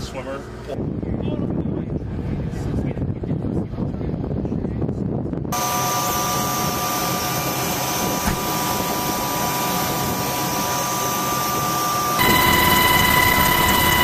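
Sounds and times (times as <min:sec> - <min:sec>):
helicopter turbine engines running: 0:00.0 - 0:14.0
high steady whine: 0:05.5 - 0:14.0.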